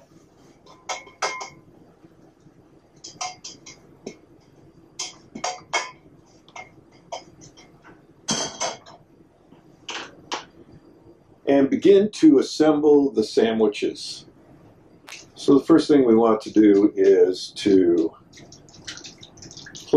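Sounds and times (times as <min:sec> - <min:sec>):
utensil clinking against pan: 0:03.0 - 0:03.8.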